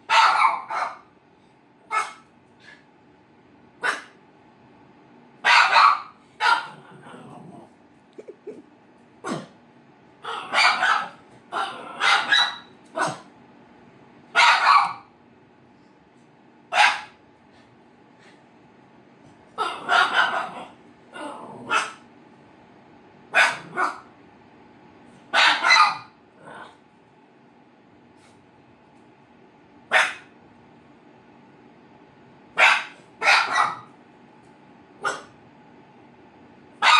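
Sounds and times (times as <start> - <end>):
dog barking: 0.0 - 1.1, 1.9 - 2.3, 3.8 - 4.2, 5.4 - 6.8, 9.2 - 9.6, 10.2 - 13.3, 14.3 - 15.1, 16.7 - 17.2, 19.6 - 20.8, 21.6 - 22.0, 23.3 - 24.1, 25.3 - 26.2, 29.9 - 30.3, 32.6 - 33.9, 35.0 - 35.4.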